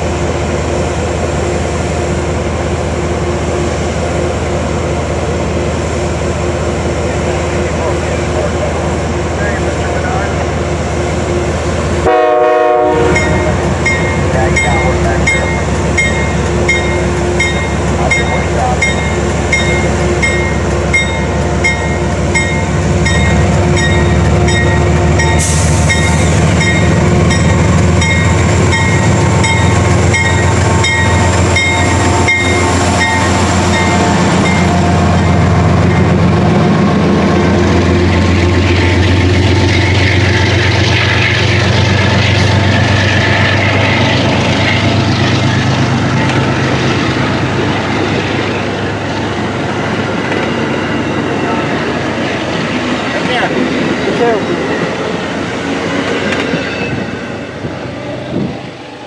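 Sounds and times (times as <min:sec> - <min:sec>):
diesel locomotive engine: 0:00.0 - 0:59.0
locomotive bell ringing: 0:13.0 - 0:36.2, 0:49.4 - 0:52.4
train wheels hissing on rail: 0:25.2 - 0:26.8.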